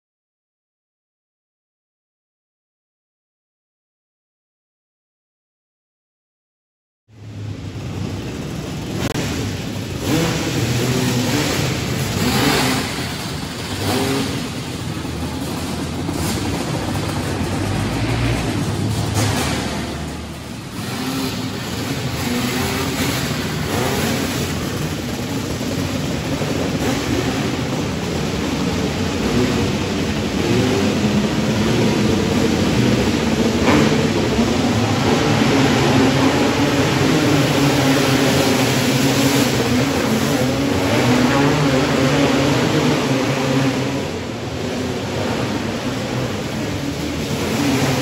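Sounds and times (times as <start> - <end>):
kart engines racing: 7.2 - 48.0.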